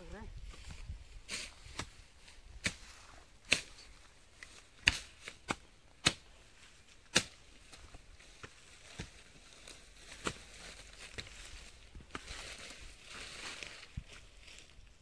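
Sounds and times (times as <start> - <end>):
digging tool striking ground: 1.3 - 6.3, 7.0 - 9.2.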